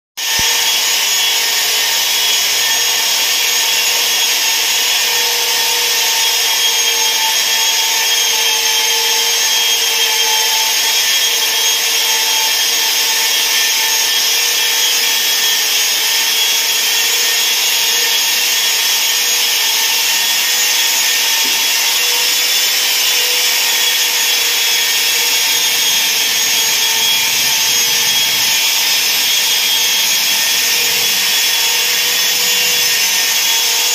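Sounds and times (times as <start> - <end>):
polisher motor whine: 0.2 - 33.9.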